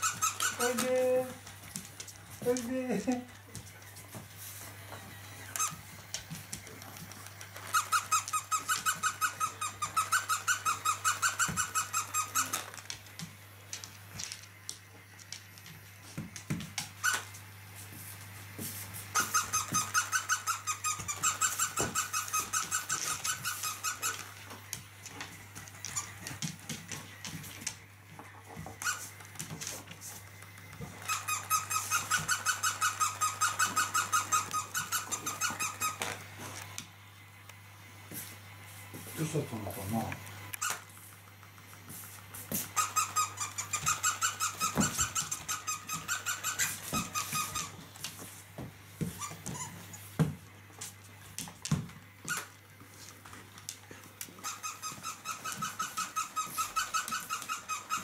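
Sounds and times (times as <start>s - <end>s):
toy squeaking: 0.0s - 1.3s, 5.5s - 5.9s, 7.5s - 12.8s, 19.1s - 24.4s, 31.0s - 36.2s, 42.7s - 47.8s, 54.4s - 58.0s.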